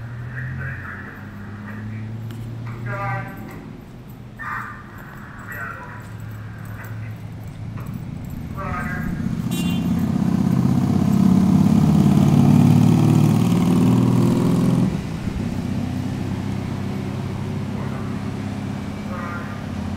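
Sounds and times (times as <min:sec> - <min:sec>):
diesel engine running: 0:00.0 - 0:19.9.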